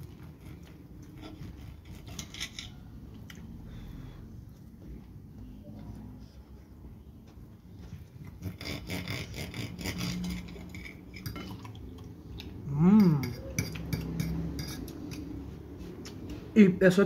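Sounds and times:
person humming: 0:12.6 - 0:13.4
cutlery clinking on a plate: 0:13.0 - 0:15.3.

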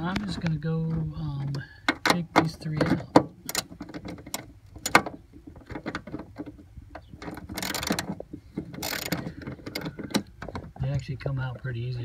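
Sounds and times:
socket wrench clicking: 0:08.8 - 0:10.3.

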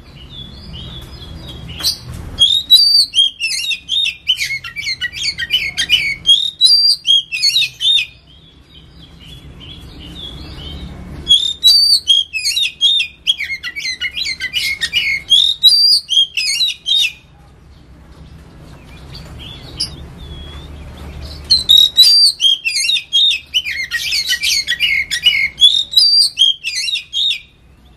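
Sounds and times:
bird singing whistled phrases: 0:01.7 - 0:08.5, 0:10.2 - 0:17.2, 0:21.4 - 0:27.5.

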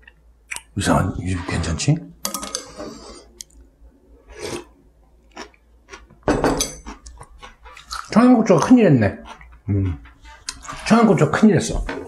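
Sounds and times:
eating noise: 0:06.7 - 0:11.2.

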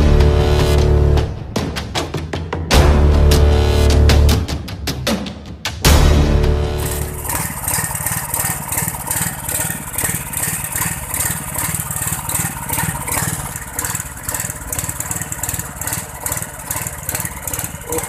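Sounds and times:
engine-driven pump running: 0:05.9 - 0:18.0.

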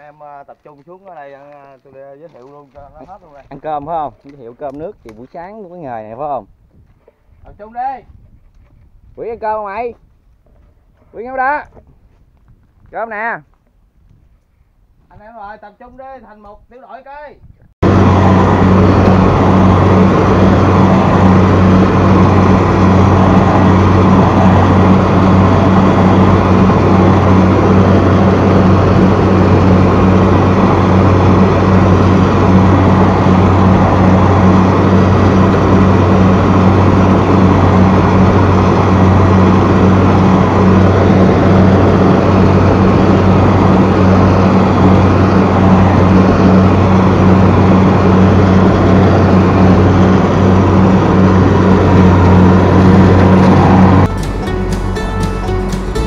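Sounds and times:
combine harvester diesel engine: 0:17.8 - 0:56.0.

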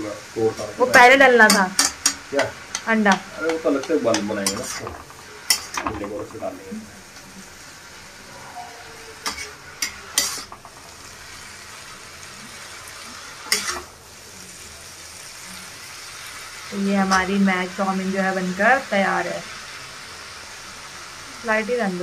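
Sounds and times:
noodles sizzling in a pan: 0:00.0 - 0:22.0
metal utensil scraping a pan: 0:00.9 - 0:06.5, 0:08.3 - 0:11.0, 0:13.4 - 0:13.9.

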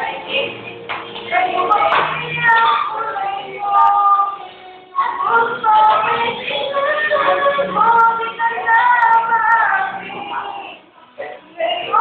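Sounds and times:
child singing: 0:01.2 - 0:12.0.

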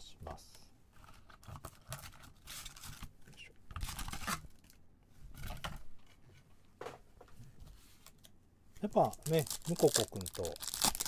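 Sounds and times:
foil packs crinkling: 0:08.9 - 0:11.0.

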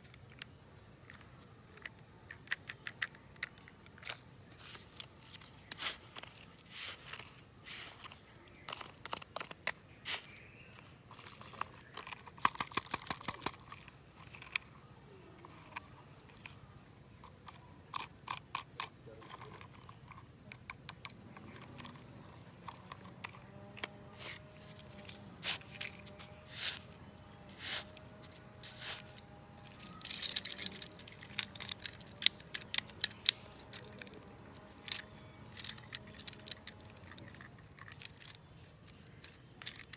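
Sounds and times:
plastic toy trucks rattling: 0:00.0 - 0:39.9
plastic scoop scraping damp sand: 0:05.7 - 0:08.2, 0:23.8 - 0:29.2.

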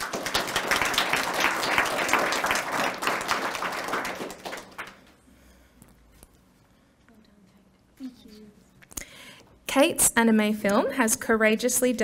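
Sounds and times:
audience applauding: 0:00.0 - 0:05.1.

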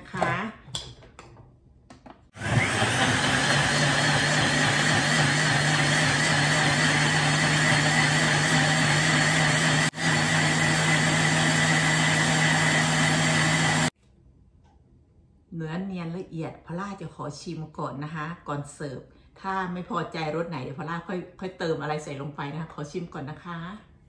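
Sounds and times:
blender running: 0:02.3 - 0:14.0.

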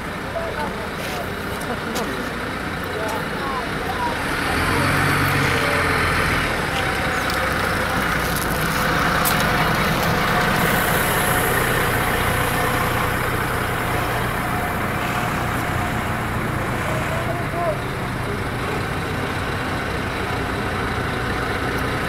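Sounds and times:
buses driving slowly past: 0:00.0 - 0:22.0
tyre and road noise: 0:00.0 - 0:22.0.

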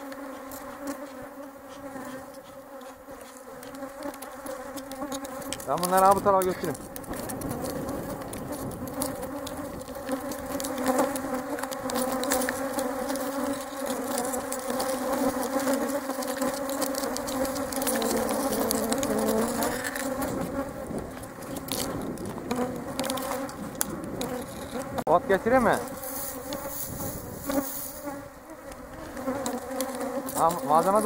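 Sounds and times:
honeybees buzzing: 0:00.0 - 0:31.0
sharp ticks: 0:02.3 - 0:25.0.

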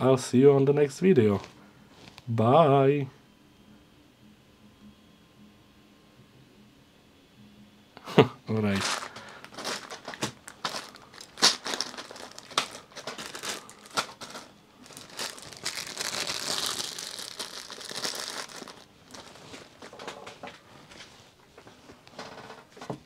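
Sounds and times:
plastic bags crinkling: 0:08.7 - 0:20.5
knocks and clatters of plastic: 0:08.8 - 0:14.5, 0:19.8 - 0:20.6.

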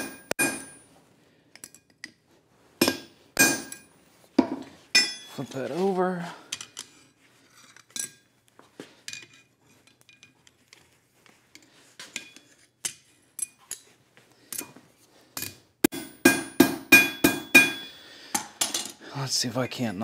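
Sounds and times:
metal clinks on anvil: 0:05.0 - 0:05.5, 0:16.0 - 0:17.9.

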